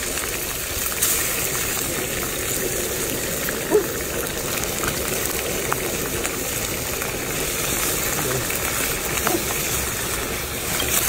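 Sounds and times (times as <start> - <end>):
wok cooking rushing noise: 0.0 - 11.0.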